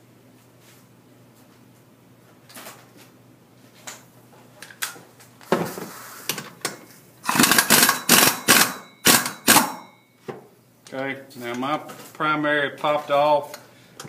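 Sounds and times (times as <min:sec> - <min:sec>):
pneumatic impact wrench hammering: 0:07.2 - 0:10.0.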